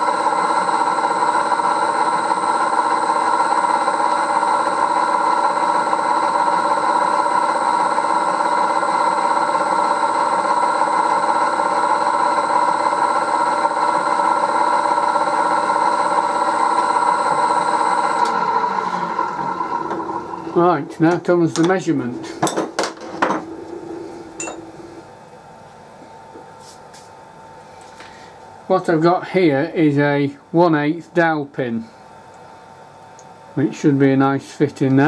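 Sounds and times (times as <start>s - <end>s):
milling machine motor running: 0.0s - 25.6s.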